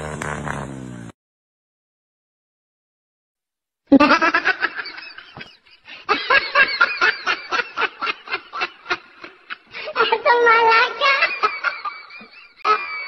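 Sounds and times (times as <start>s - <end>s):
person laughing: 3.9s - 13.0s.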